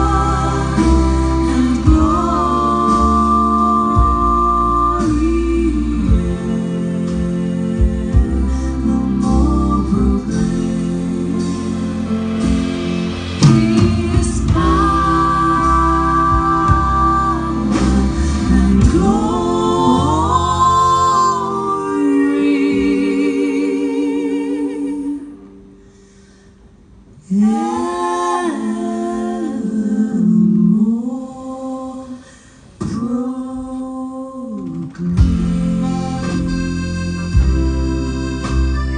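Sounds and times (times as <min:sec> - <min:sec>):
female vocal trio singing: 0:00.0 - 0:12.4, 0:13.3 - 0:25.8, 0:27.2 - 0:35.3
accordion: 0:00.0 - 0:25.3, 0:35.2 - 0:38.9
drums: 0:00.0 - 0:31.0, 0:32.1 - 0:38.9
guitar: 0:00.0 - 0:31.0, 0:34.4 - 0:38.9
double bass: 0:00.0 - 0:32.0, 0:32.8 - 0:38.9.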